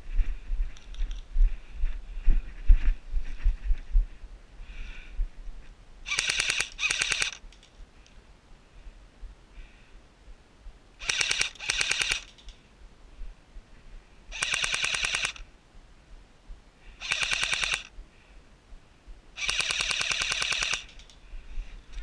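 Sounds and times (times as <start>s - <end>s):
airsoft rifle bursts: 6.1s - 7.4s, 11.0s - 12.5s, 14.3s - 15.4s, 17.0s - 17.9s, 19.4s - 21.1s.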